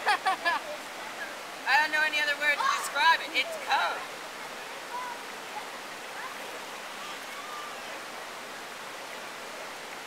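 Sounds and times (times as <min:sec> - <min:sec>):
river rushing over rocks: 0:00.0 - 0:10.0.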